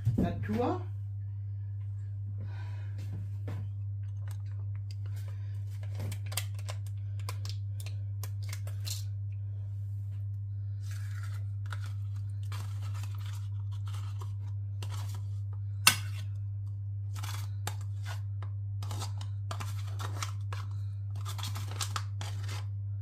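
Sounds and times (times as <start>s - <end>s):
steady low hum: 0.0s - 23.0s
spoon scraping yoghurt pot: 17.1s - 22.7s.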